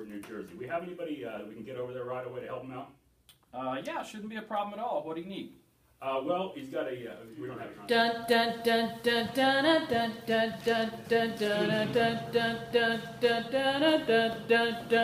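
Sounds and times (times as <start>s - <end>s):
voices singing rhythmic music: 7.8s - 15.0s.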